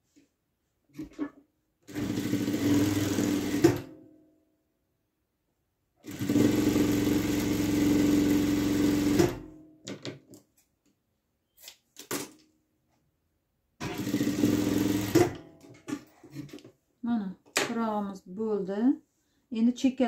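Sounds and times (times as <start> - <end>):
sewing machine stitching: 1.8 - 3.9, 6.0 - 9.5, 13.8 - 15.4.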